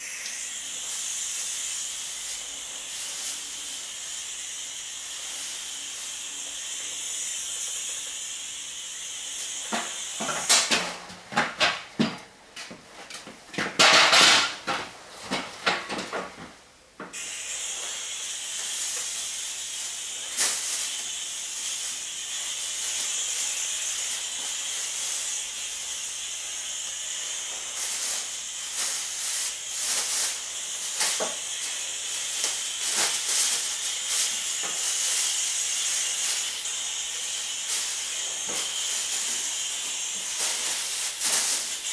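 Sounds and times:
sprayer hissing: 0.0 - 11.5, 17.1 - 41.9
irregular crackling and rustling: 37.7 - 41.8.

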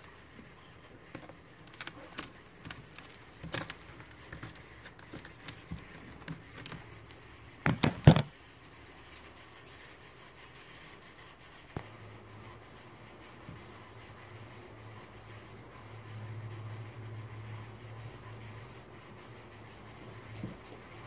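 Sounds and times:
lizard claws scratching: 0.0 - 8.3
loud knocks and rustling: 7.6 - 8.3.

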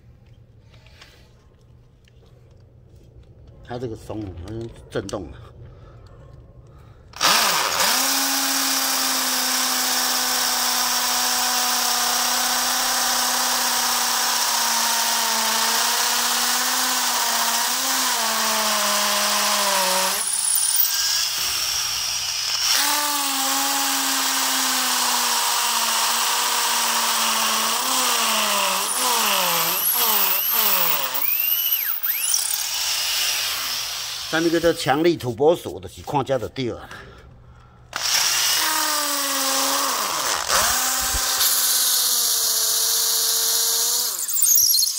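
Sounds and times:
electric drill boring into concrete: 7.2 - 34.8, 37.9 - 44.9.

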